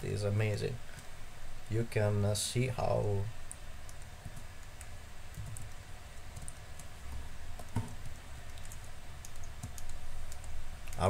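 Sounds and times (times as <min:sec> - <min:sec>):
keyboard and mouse clicks: 0:03.4 - 0:11.0.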